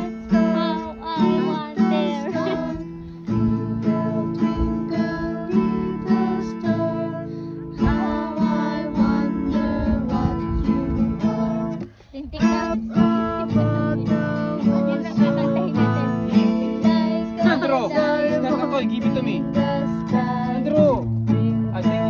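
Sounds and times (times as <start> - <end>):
acoustic guitar strumming: 0.0 - 22.0.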